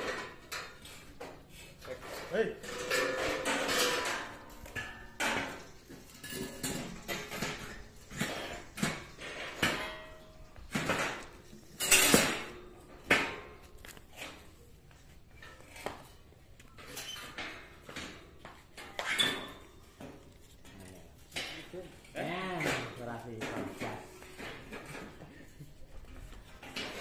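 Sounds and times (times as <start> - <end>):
metal pipes clanking: 0.0 - 14.6, 21.2 - 27.0.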